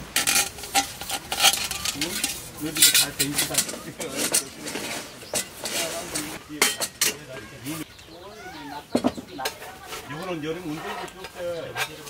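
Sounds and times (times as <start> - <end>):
metal stove parts clinking: 0.0 - 7.4.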